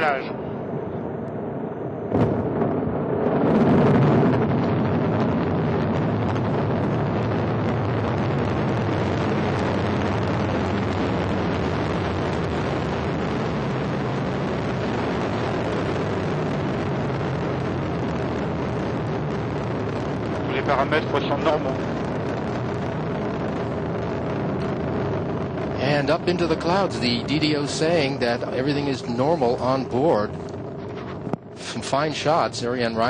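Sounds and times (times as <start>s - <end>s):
rocket engine roar: 0.0s - 33.0s.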